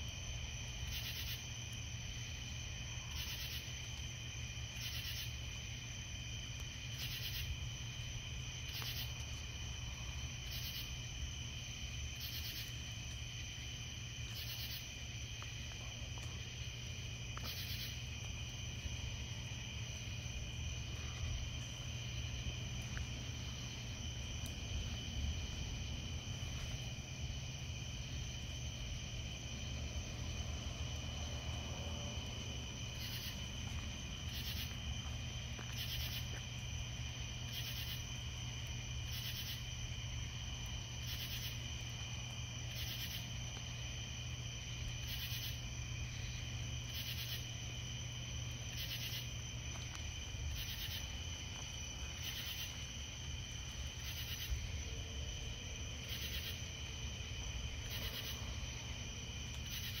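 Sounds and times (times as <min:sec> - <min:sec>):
crickets trilling: 0:00.0 - 1:00.0
loud insect call: 0:00.0 - 1:00.0.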